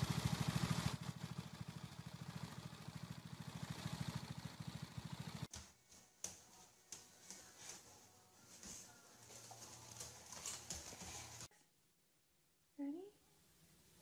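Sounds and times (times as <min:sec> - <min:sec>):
small engine idling: 0:00.0 - 0:05.5.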